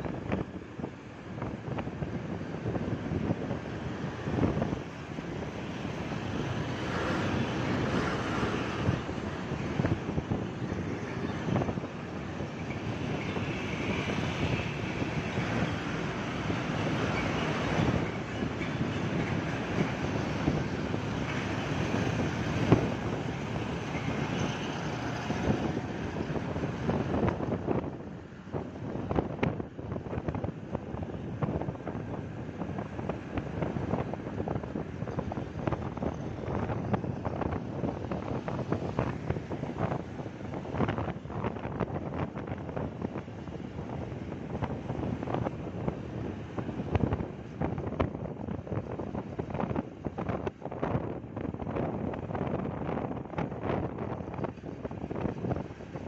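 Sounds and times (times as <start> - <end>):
motorcycle road noise: 0.0 - 56.0
wind rushing over microphone: 0.0 - 56.0.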